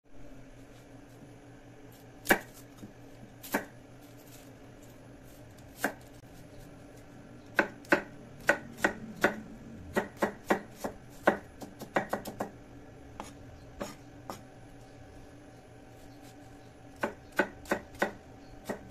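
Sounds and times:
cleaver chopping onion on wood: 0:02.2 - 0:03.7, 0:05.7 - 0:06.0, 0:07.5 - 0:12.6, 0:16.9 - 0:18.9.

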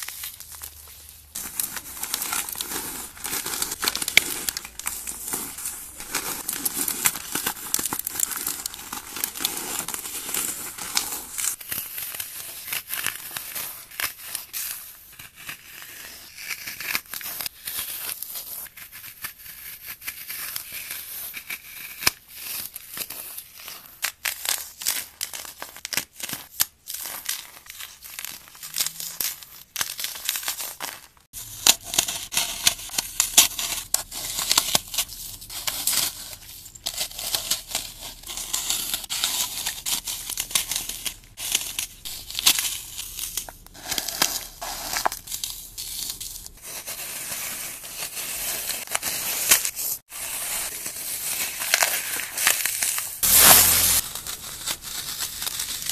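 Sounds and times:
floral foam crunching by hand: 0:00.0 - 0:14.6, 0:29.8 - 0:55.9.

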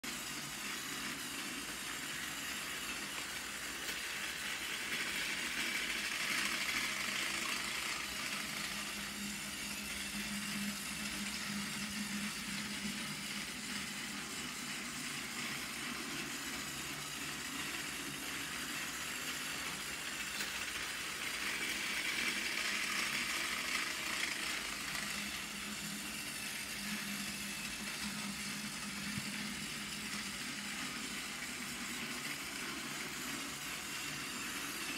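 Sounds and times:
toy train motor whir: 0:00.0 - 0:34.9.

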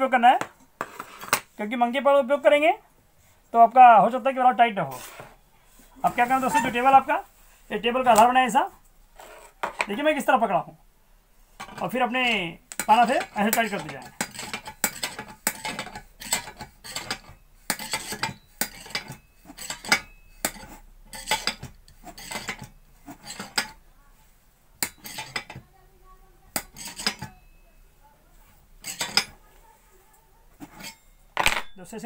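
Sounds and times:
spanner clinking on metal: 0:24.8 - 0:25.6, 0:26.5 - 0:27.6, 0:28.8 - 0:29.4.

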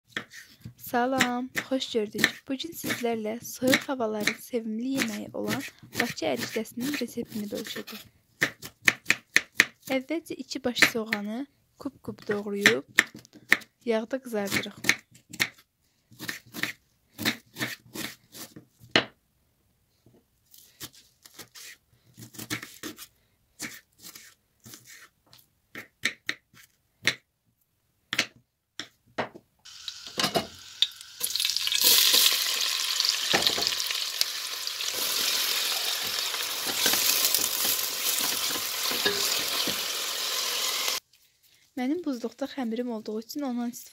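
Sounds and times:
knife chopping on cutting board: 0:01.2 - 0:03.0, 0:03.6 - 0:09.9, 0:16.2 - 0:19.1, 0:21.3 - 0:23.0
onion sizzling in hot oil: 0:29.7 - 0:41.0
spatula stirring in pot: 0:34.8 - 0:40.0.

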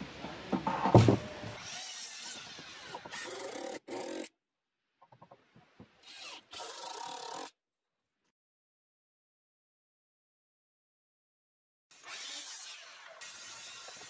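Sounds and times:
cordless drill driving screws into wood: 0:00.9 - 0:04.3, 0:06.0 - 0:07.5.

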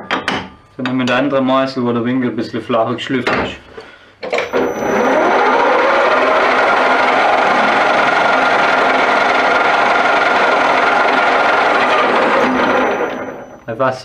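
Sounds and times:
metal lathe motor whine: 0:04.4 - 0:13.7.

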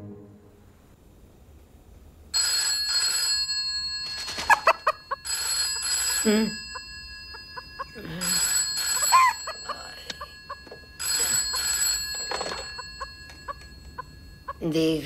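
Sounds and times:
telephone ringing: 0:02.4 - 0:15.0
hen clucking: 0:08.9 - 0:11.6.

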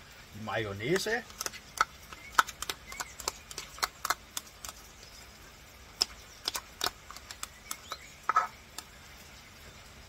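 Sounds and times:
utensil scraping a glass jar: 0:07.8 - 0:08.6.

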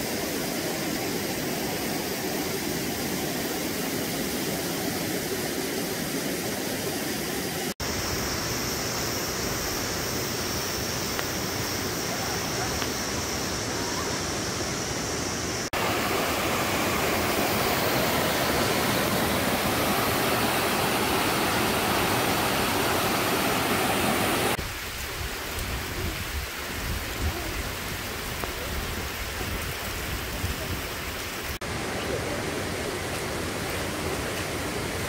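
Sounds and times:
rain falling: 0:00.0 - 0:35.0.

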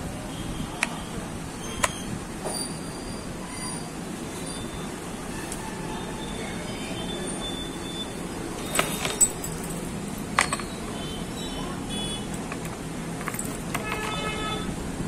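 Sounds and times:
small metal clicks and taps: 0:10.3 - 0:10.8, 0:12.4 - 0:14.2.

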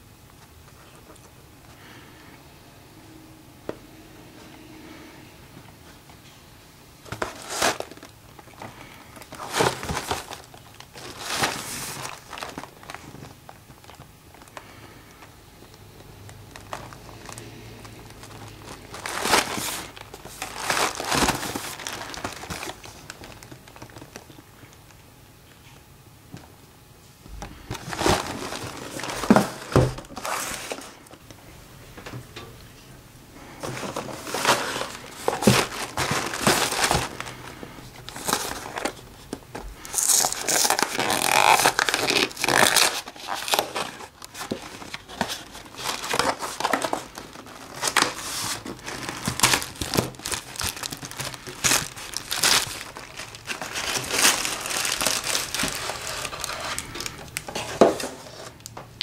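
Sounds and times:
cardboard box rustling and crinkling: 0:07.1 - 0:14.6, 0:16.3 - 0:24.4, 0:27.5 - 0:31.0, 0:33.6 - 0:58.6.

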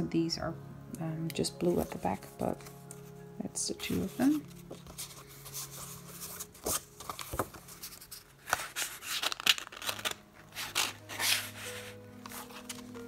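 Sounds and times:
paper rustling: 0:03.8 - 0:13.0.

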